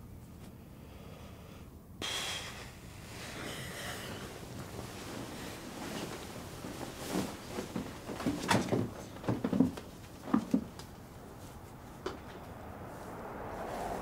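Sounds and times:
bedclothes rustling: 2.9s - 14.0s.

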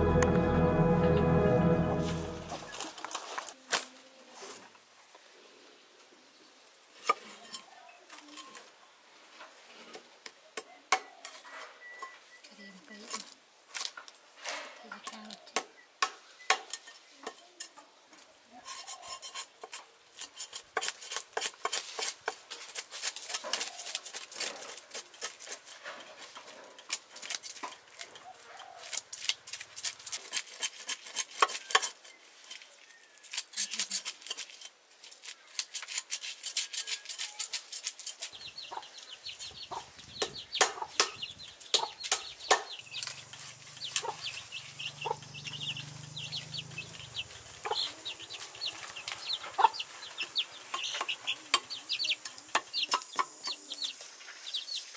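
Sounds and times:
cleaver scraping fish scales: 18.5s - 38.7s.

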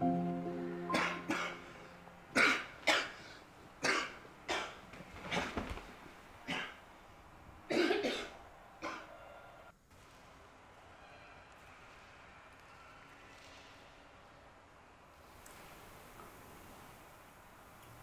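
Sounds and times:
person coughing: 0.9s - 3.2s, 7.7s - 9.0s.

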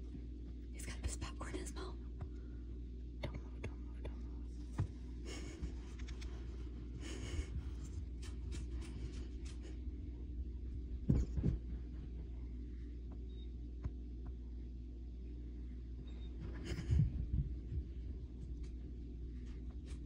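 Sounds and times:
steady low hum: 0.0s - 20.0s
soft whispering: 0.7s - 2.2s.

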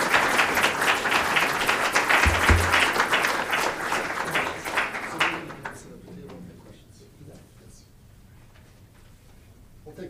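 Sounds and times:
audience applauding: 0.0s - 5.8s
low thumps: 2.2s - 3.0s.

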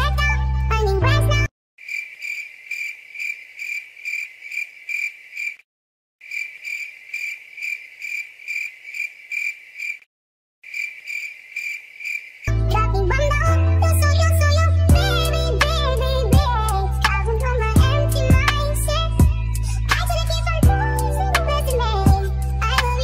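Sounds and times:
cricket chirping: 1.8s - 5.6s, 6.2s - 12.5s.

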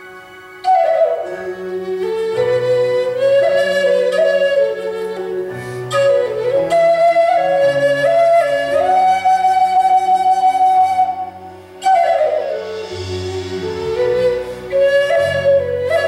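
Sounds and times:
low sustained accompaniment: 0.0s - 16.0s
wooden flute melody: 0.0s - 16.0s.

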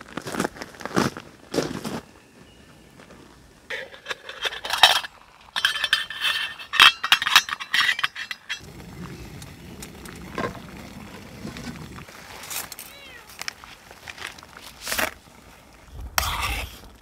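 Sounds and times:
pot lid clinking and rattling: 3.7s - 8.6s
water boiling: 8.6s - 15.9s.

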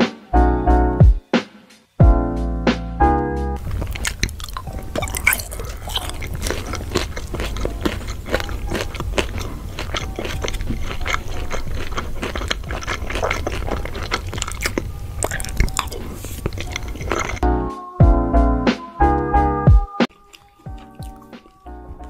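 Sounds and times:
chewing food close-up: 3.6s - 17.4s, 20.0s - 22.0s
piano tune: 17.4s - 22.0s.

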